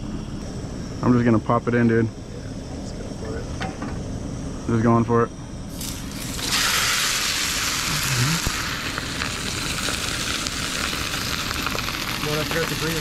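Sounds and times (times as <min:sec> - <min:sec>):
fish sizzling in hot oil: 0:05.7 - 0:13.0.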